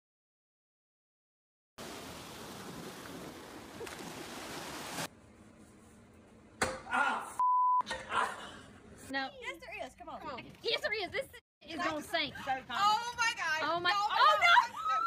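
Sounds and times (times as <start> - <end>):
small waves breaking on beach: 1.8 - 5.1
man shouting: 6.9 - 7.4
censor bleep: 7.4 - 7.8.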